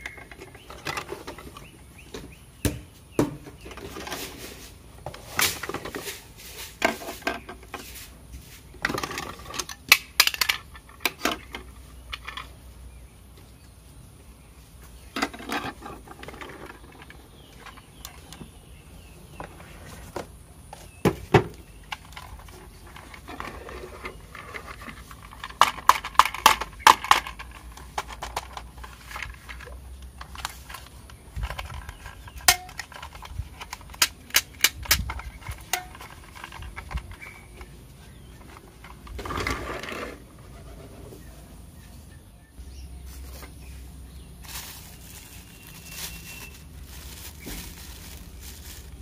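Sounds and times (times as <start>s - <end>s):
plastic toy parts clicking: 25.2s - 37.2s.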